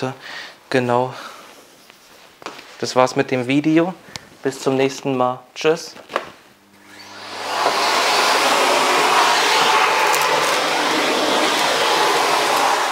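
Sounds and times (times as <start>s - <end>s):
vacuum cleaner running: 6.6s - 12.9s.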